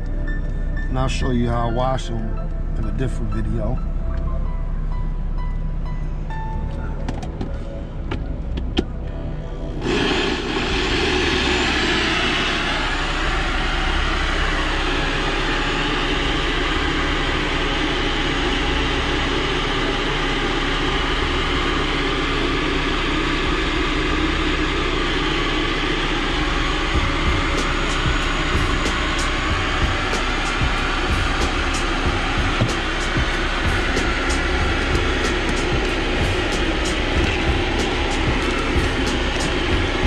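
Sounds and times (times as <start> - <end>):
blender motor running: 9.8 - 40.0.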